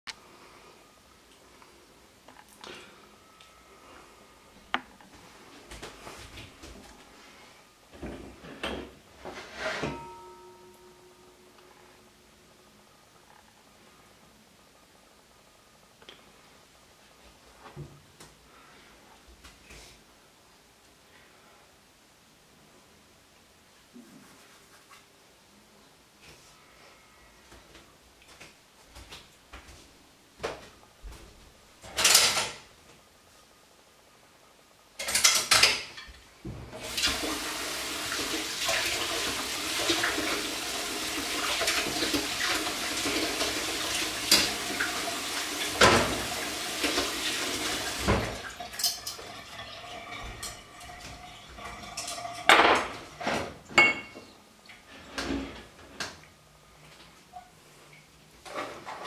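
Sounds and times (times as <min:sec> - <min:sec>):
dishes and utensils clattering: 0:08.0 - 0:10.7, 0:35.0 - 0:36.2, 0:48.7 - 0:54.3
tap water filling jug: 0:36.8 - 0:52.9.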